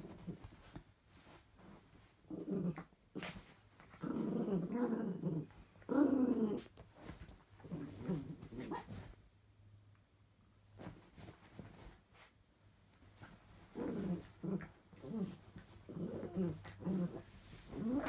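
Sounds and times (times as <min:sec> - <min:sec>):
small dog growling: 0:02.3 - 0:06.7, 0:07.6 - 0:09.0, 0:13.6 - 0:18.0.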